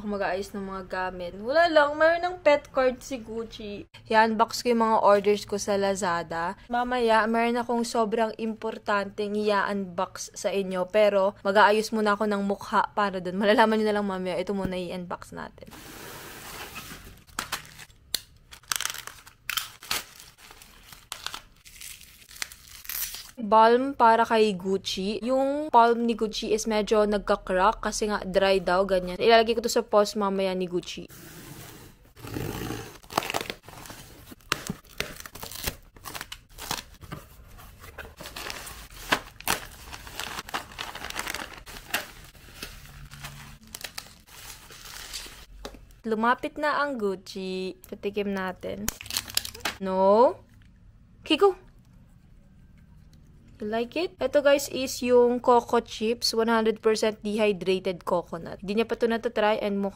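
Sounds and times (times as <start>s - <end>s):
plastic film and cardboard tearing: 17.0s - 23.4s, 33.0s - 37.0s, 38.1s - 45.5s
plastic packaging crinkling: 17.1s - 23.4s, 38.0s - 45.5s, 48.9s - 49.8s.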